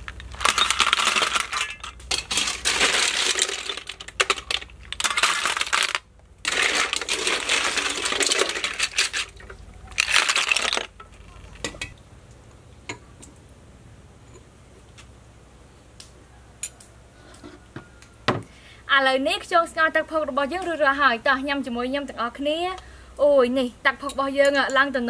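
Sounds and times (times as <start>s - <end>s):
shells clattering on metal tray: 0.3s - 12.0s.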